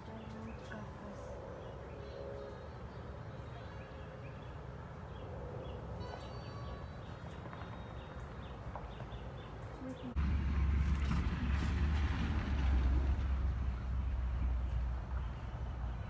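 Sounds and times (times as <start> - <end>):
small birds chirping: 0.0 - 10.2.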